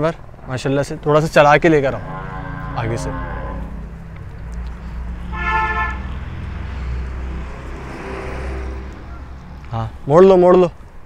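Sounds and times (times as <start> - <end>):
steady low rumble: 0.4 - 8.0
cow mooing: 1.6 - 4.0.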